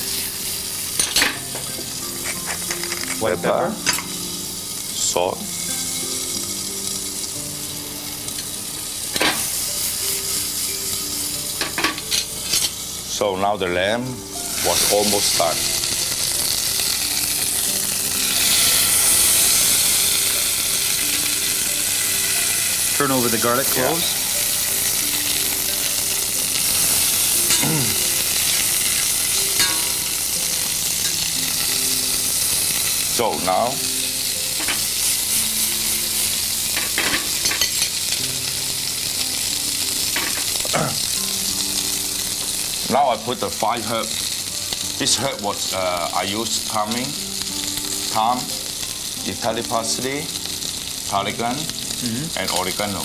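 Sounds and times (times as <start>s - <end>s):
food sizzling in saucepans: 0.0s - 53.0s
fork and spoon turning food: 1.0s - 4.2s, 23.4s - 33.5s.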